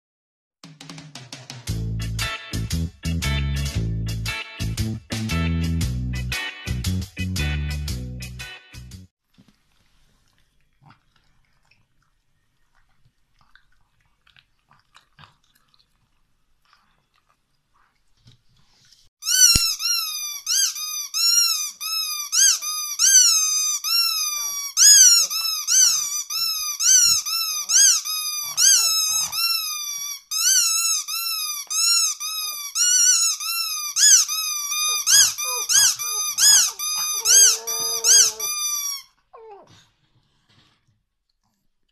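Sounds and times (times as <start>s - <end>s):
rubber squeaky toy squeaking: 19.2s - 39.6s.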